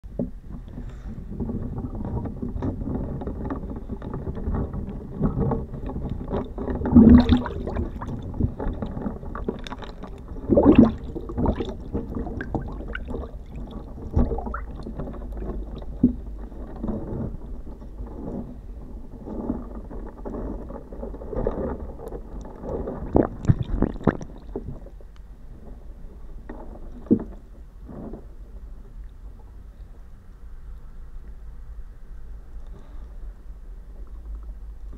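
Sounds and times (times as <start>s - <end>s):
water churning: 0.6s - 25.0s
packet crinkling underwater: 0.7s - 29.3s.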